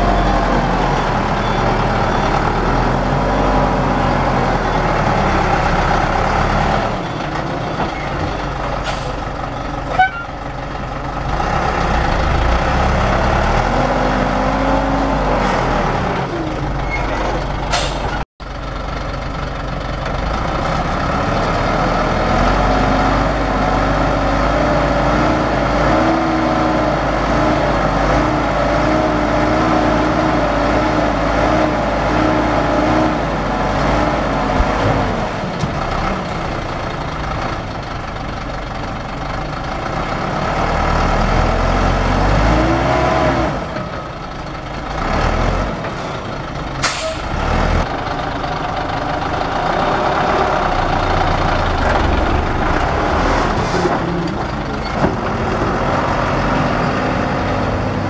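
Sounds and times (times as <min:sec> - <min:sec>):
truck engine revving: 0:00.0 - 0:07.7, 0:11.1 - 0:18.2, 0:20.2 - 0:58.0.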